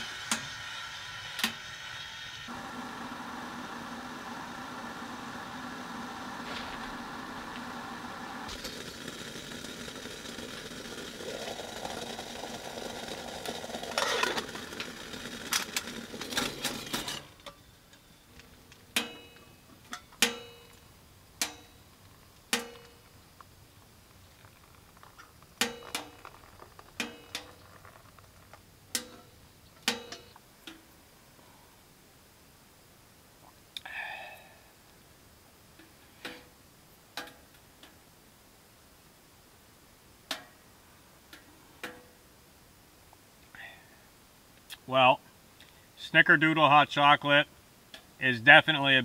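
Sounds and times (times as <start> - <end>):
kettle hiss: 0.0 - 49.0
water pouring into metal mug: 8.5 - 13.9.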